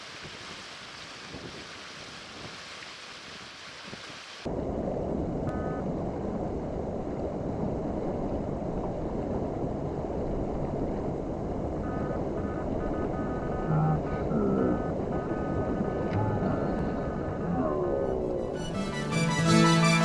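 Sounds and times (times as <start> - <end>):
wind hiss: 0.0 - 5.6
water: 0.0 - 18.6.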